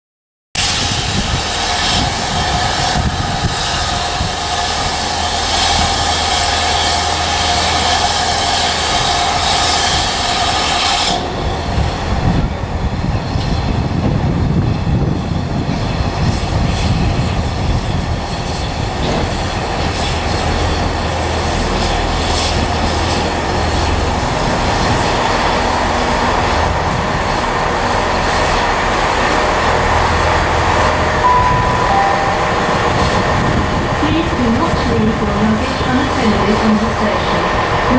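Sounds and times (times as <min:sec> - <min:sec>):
steam hissing loudly: 0:00.6 - 0:11.3
steam locomotive rumble: 0:00.6 - 0:37.9.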